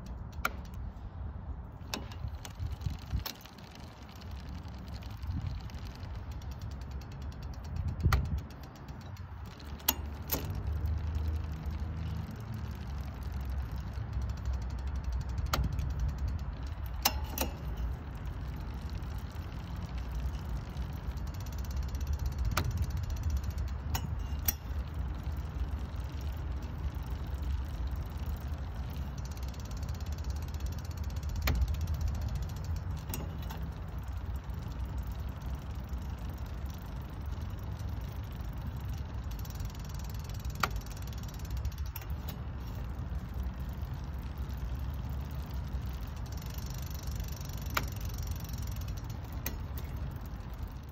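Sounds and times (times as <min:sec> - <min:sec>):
bicycle chain whirring: 0:00.0 - 0:50.9
derailleur shifting click: 0:00.0 - 0:50.9.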